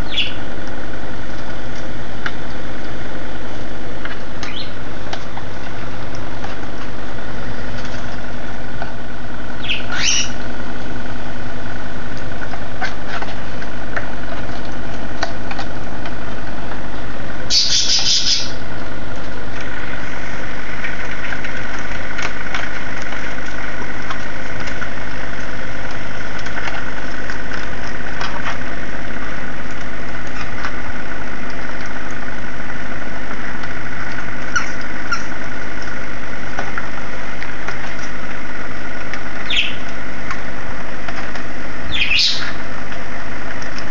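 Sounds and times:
cockatiel chirping: 0.0s - 0.4s, 4.4s - 4.8s, 9.6s - 10.4s, 17.5s - 18.6s, 39.5s - 39.8s, 41.9s - 42.6s
humidifier humming: 0.0s - 43.9s.

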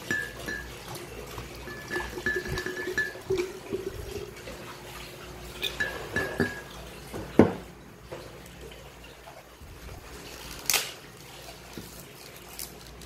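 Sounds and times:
glass clinks: 0.0s - 0.7s, 1.7s - 3.5s, 5.6s - 6.7s
liquid glugging from bottle: 1.4s - 4.6s.

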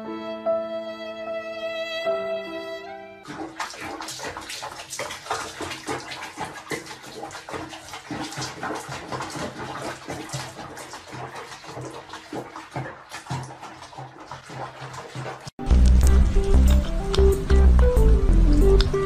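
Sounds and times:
water splashing in a sink: 3.2s - 19.0s.

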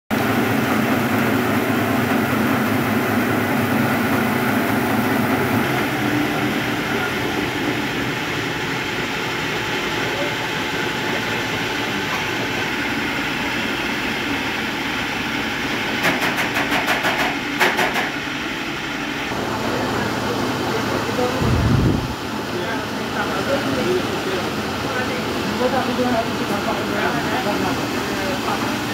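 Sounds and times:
mill machinery droning: 0.1s - 28.9s.

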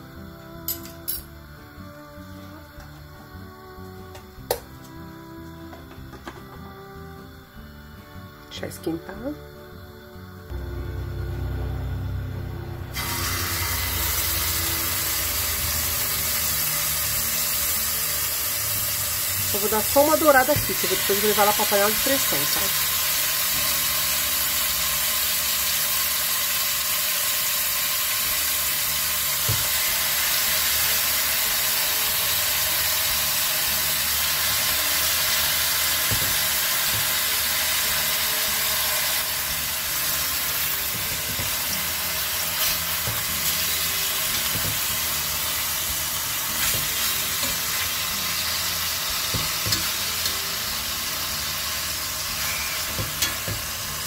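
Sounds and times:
meat sizzling in a pot: 12.9s - 54.0s.

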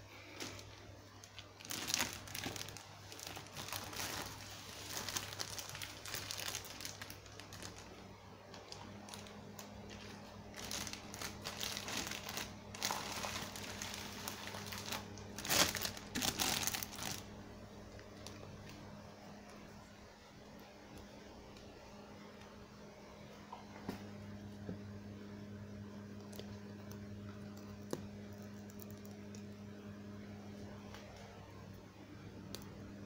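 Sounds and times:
plastic wrapping crinkling: 0.2s - 19.7s, 26.2s - 29.6s.

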